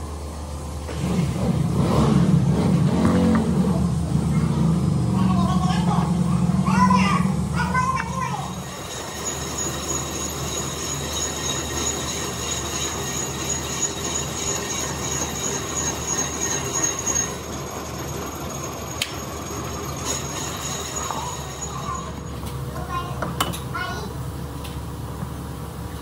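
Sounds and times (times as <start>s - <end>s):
high-pitched whine: 3.4s - 23.2s
machine humming: 7.2s - 23.0s.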